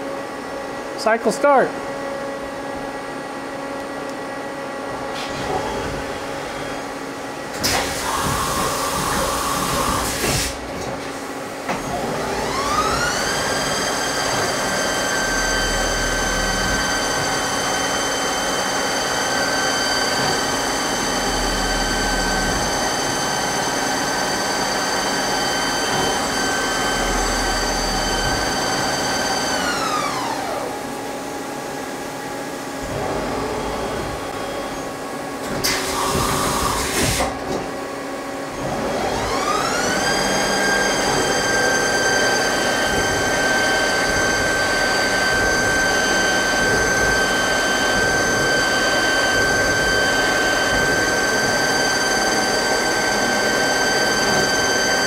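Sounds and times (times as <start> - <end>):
lathe spindle motor whine: 11.7 - 32.0, 38.6 - 55.0.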